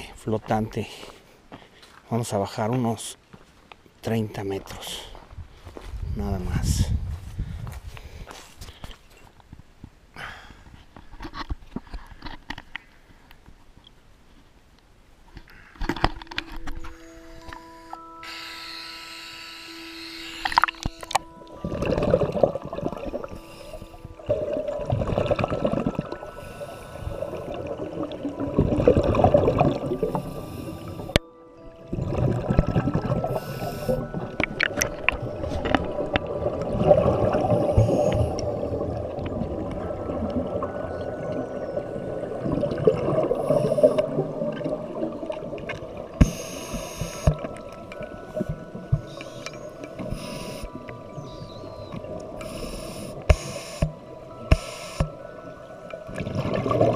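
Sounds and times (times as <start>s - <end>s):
soft background music: 16.2s - 56.9s
underwater exhaled bubbles gurgling: 20.4s - 31.2s, 31.9s - 56.9s.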